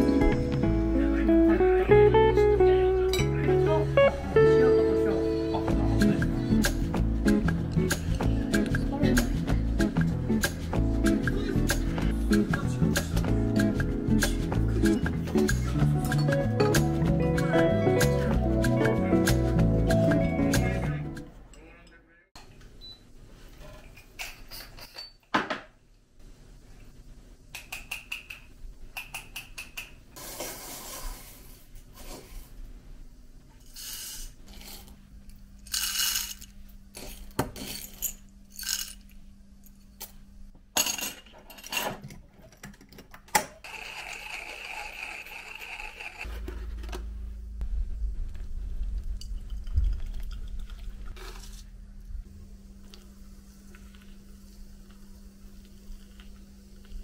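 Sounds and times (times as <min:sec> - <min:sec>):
coffee beans rattling in glass jar: 0:35.6 - 0:39.1, 0:43.7 - 0:46.3
water pouring from kettle: 0:49.2 - 0:51.6.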